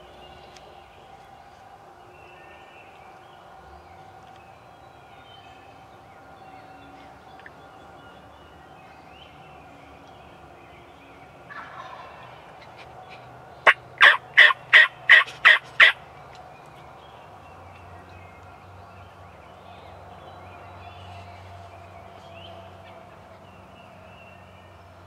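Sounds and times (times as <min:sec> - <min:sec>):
turkey yelping: 0:11.5 - 0:12.2, 0:13.6 - 0:16.0.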